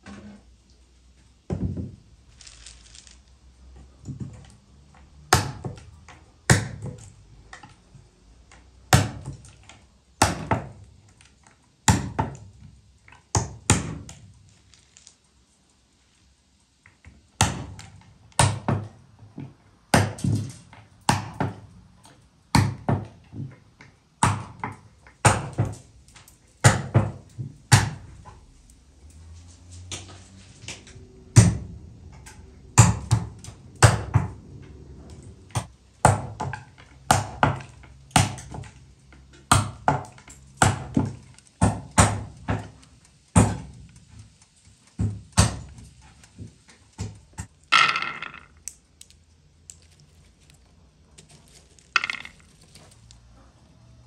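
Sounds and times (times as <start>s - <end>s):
nutcracker cracking nuts: 2.1s - 15.9s, 35.5s - 53.4s.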